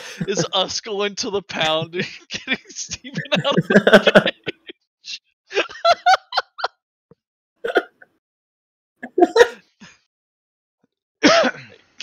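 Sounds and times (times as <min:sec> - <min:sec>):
person's voice over voice chat: 0:00.0 - 0:05.2.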